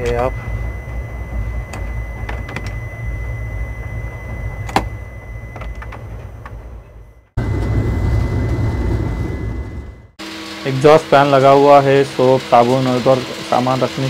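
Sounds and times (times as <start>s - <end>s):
faint high tone: 0.0s - 7.3s
train rumbling: 0.0s - 10.2s.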